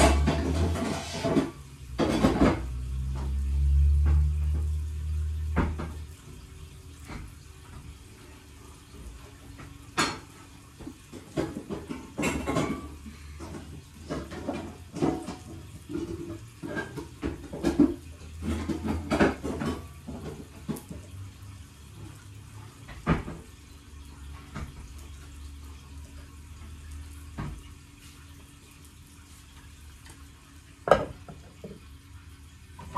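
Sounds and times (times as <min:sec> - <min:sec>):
utensils clinking against bowls: 0:00.0 - 0:03.2, 0:11.2 - 0:20.4.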